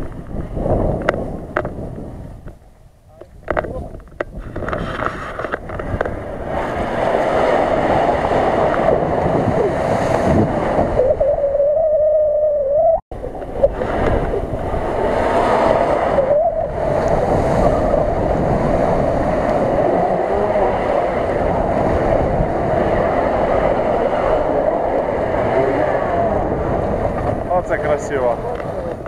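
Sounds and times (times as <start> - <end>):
engine revving hard: 18.6 - 27.0.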